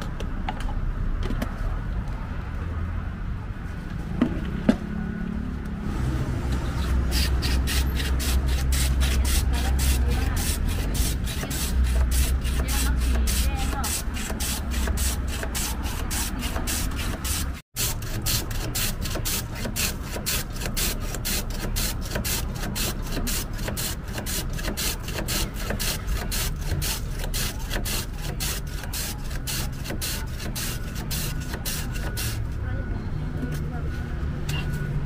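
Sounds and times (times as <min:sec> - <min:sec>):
ice rasping on a blade: 0:06.7 - 0:32.6.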